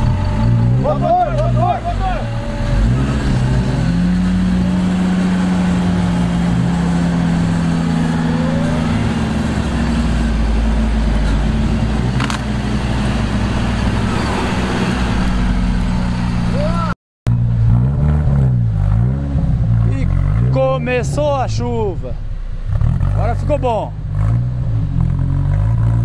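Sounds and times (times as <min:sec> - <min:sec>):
diesel engine under load: 0:00.0 - 0:26.0.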